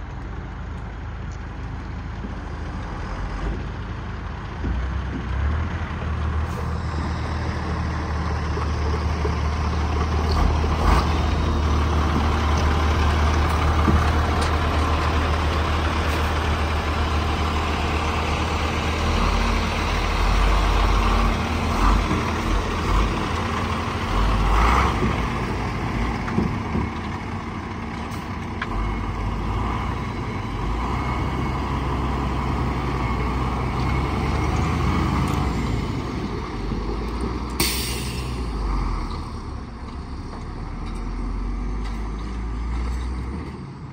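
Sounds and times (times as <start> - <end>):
diesel truck engine running: 0.0 - 43.9
brief air hiss: 37.6 - 38.5.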